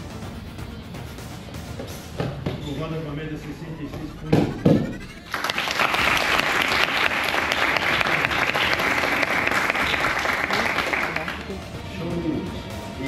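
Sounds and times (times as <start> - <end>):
crowd applauding: 5.2 - 11.8.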